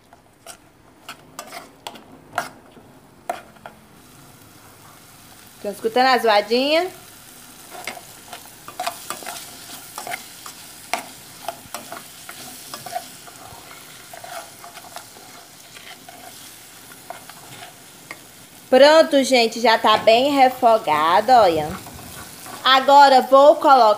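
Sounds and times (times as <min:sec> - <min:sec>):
metal spoon scraping pot: 0:00.4 - 0:02.6, 0:07.7 - 0:17.8
vegetables sizzling in oil: 0:01.4 - 0:23.9.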